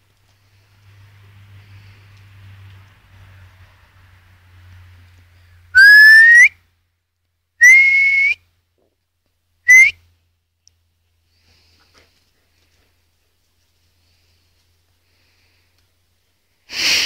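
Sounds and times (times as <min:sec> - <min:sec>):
person whistling: 0:05.8 - 0:06.5, 0:07.6 - 0:08.4, 0:09.7 - 0:10.0.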